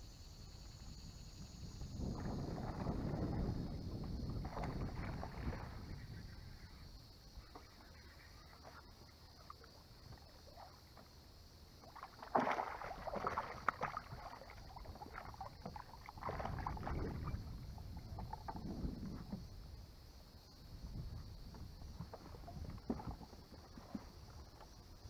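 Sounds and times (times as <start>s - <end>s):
fish splashing in water: 11.8s - 17.5s.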